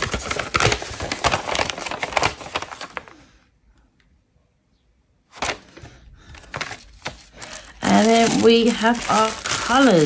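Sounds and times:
paper rustling and crinkling: 0:00.0 - 0:03.2, 0:05.3 - 0:10.0.

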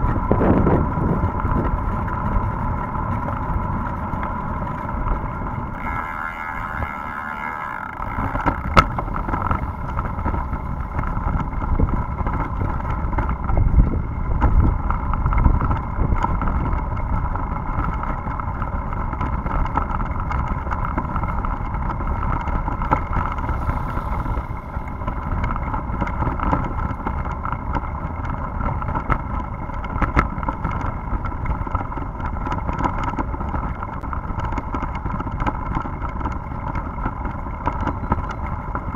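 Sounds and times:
steady high whine: 0:00.0 - 0:13.8, 0:21.0 - 0:27.6
wind buffeting microphone: 0:00.0 - 0:38.9.

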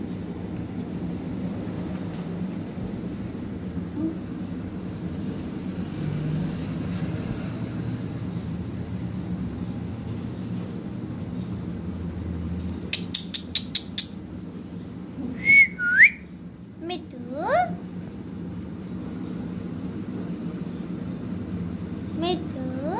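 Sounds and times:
steady low hum: 0:00.0 - 0:06.0, 0:07.9 - 0:22.9
sharp clicks: 0:12.6 - 0:14.2
parakeet whistling: 0:15.4 - 0:16.3.

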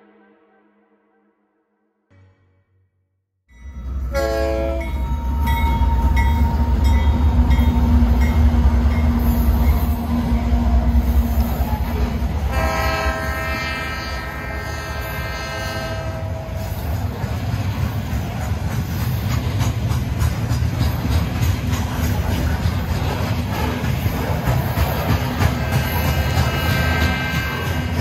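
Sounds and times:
freight train rumbling on rails: 0:03.5 - 0:28.0
train air horn blasts: 0:04.0 - 0:08.2, 0:10.6 - 0:16.9, 0:25.5 - 0:28.0.

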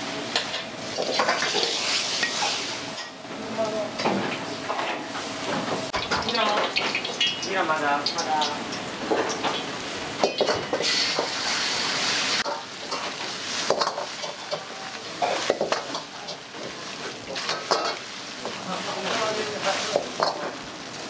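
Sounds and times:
food sizzling in a wok: 0:00.0 - 0:21.0
metal ladle scraping a wok: 0:10.7 - 0:18.0.

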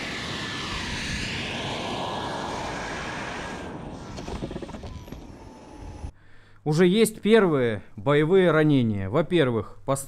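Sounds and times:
high whine falling in pitch: 0:00.0 - 0:06.1
model jet turbine running: 0:00.0 - 0:06.1.

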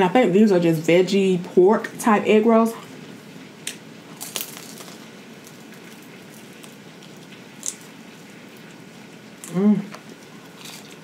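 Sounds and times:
crunchy biting and chewing: 0:04.1 - 0:08.4, 0:09.4 - 0:11.0.

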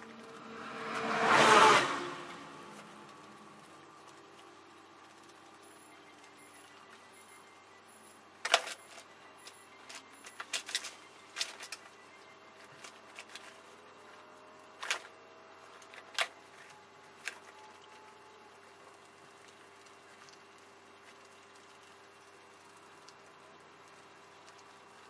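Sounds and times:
faint steady hum: 0:00.0 - 0:25.0
guinea pigs rustling in shavings: 0:08.6 - 0:25.0.

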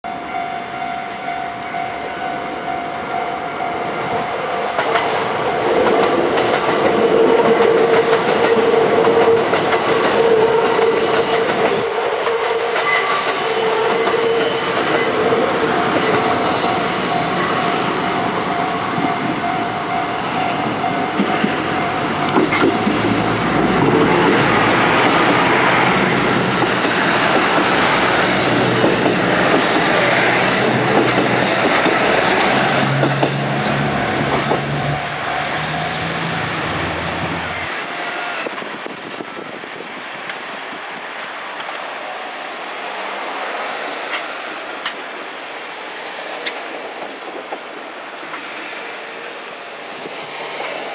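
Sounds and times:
train wheels clattering on rails: 0:04.7 - 0:36.3, 0:46.2 - 0:48.8
diesel train engines running: 0:12.8 - 0:50.9.

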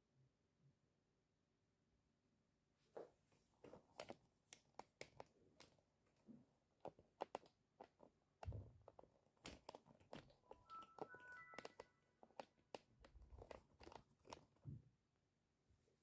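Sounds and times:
faint irregular clicks and taps: 0:03.6 - 0:14.8.

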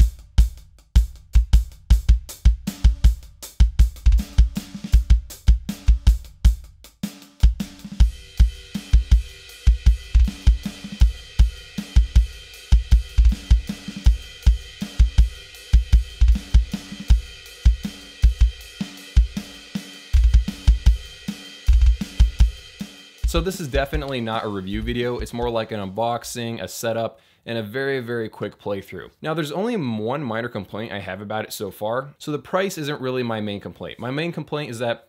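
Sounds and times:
kick drum: 0:00.0 - 0:06.8, 0:20.2 - 0:21.1, 0:21.7 - 0:24.1
hi-hat: 0:00.0 - 0:25.4
snare drum: 0:00.0 - 0:25.7
cymbal wash: 0:08.0 - 0:24.7.

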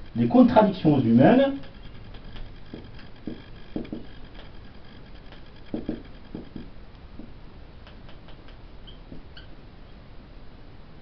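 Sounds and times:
marker writing on whiteboard: 0:01.6 - 0:04.5, 0:05.3 - 0:09.5.

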